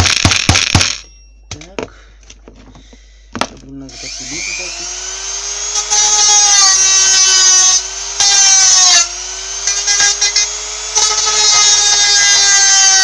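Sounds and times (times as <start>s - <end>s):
rotary tool grinding: 3.9s - 13.0s.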